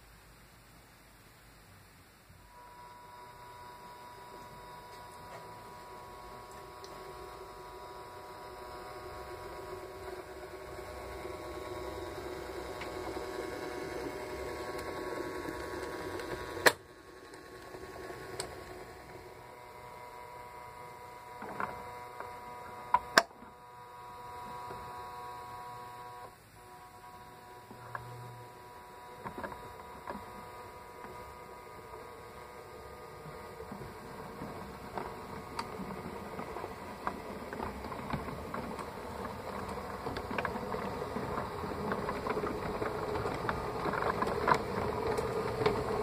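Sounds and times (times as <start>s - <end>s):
model train motor whirring: 2.5s - 46.0s
sharp clicks on track: 8.8s - 19.2s.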